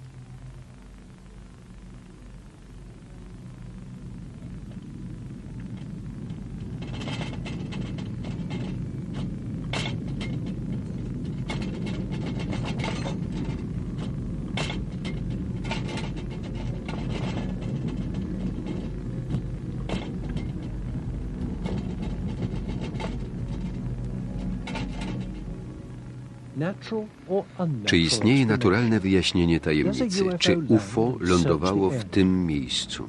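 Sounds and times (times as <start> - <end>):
deep rumble: 0.0 - 33.0
household objects rattling: 6.6 - 25.5.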